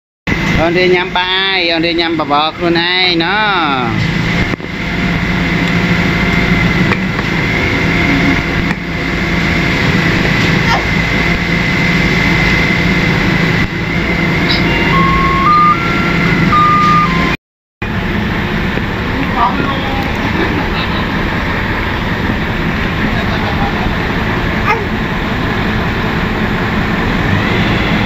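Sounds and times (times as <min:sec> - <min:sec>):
machine running with high whine: 0:04.4 - 0:19.8, 0:20.7 - 0:28.0
electronic tone melody: 0:14.3 - 0:17.4.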